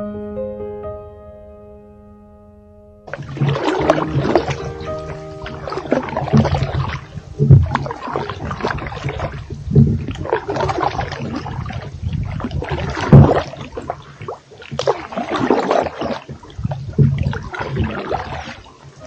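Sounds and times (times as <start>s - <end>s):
low rumble: 3.1s - 10.3s
canoe paddles splashing in water: 3.1s - 19.0s
water dripping from paddles: 3.1s - 19.0s.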